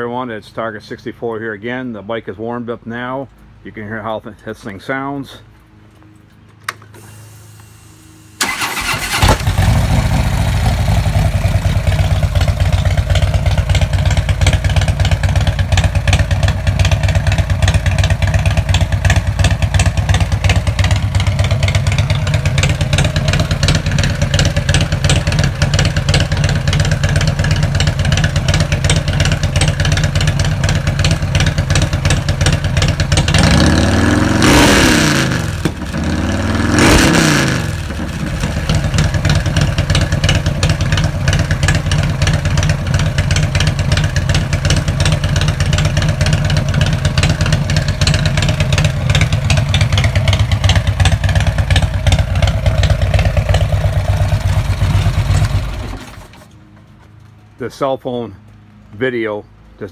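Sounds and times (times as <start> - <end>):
motorcycle electric starter: 6.6 - 34.6
motorcycle engine idling and revving: 7.4 - 57.6.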